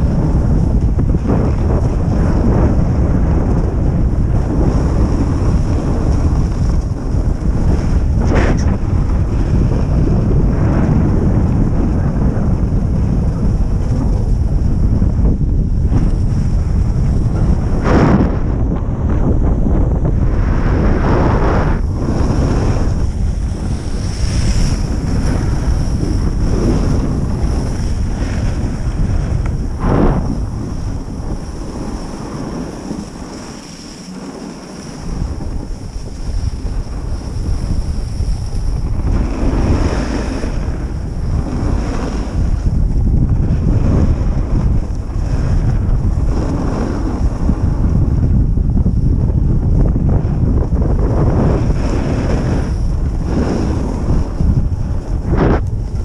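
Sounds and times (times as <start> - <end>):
wind rushing over microphone: 0.0 - 56.0
skis hissing over snow: 20.3 - 42.5, 51.5 - 54.3.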